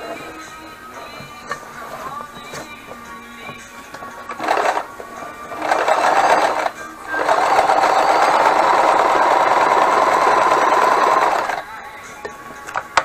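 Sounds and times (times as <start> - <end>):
sewing machine stitching: 4.0 - 11.8.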